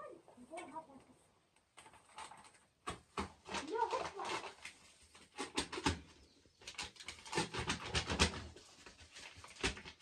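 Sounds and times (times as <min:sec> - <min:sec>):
paper packet crinkling: 0:03.4 - 0:05.9, 0:06.6 - 0:10.0.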